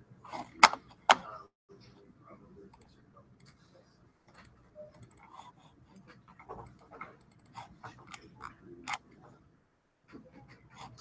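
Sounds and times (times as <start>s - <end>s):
mouse and keyboard clicks: 4.3s - 5.4s, 6.0s - 9.2s.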